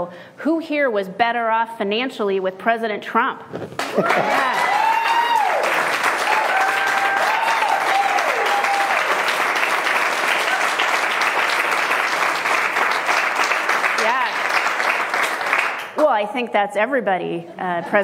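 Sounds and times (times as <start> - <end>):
people cheering: 3.8 - 15.5
audience clapping: 3.8 - 16.1.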